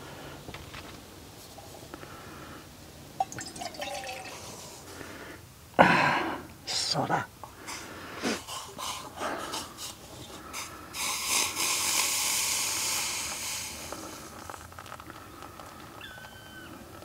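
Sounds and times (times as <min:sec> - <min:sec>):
water pouring into coffee filter: 0:03.2 - 0:04.8.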